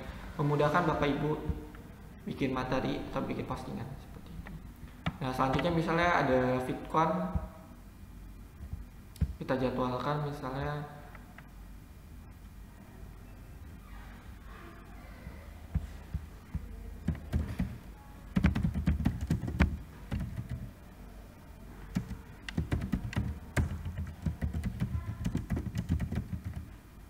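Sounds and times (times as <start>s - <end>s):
keyboard typing: 15.7s - 20.8s, 21.9s - 26.8s.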